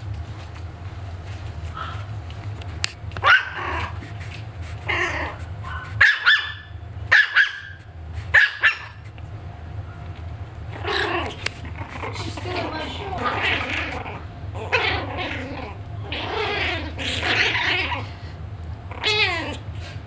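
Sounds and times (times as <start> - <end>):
puppy yapping: 1.7 - 2.1, 3.2 - 4.1, 4.8 - 9.0, 10.7 - 18.1, 18.9 - 19.6.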